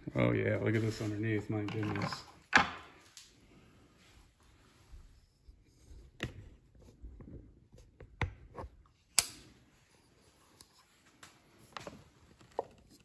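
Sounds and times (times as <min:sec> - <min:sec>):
handling knocks and clicks: 0:01.6 - 0:02.9.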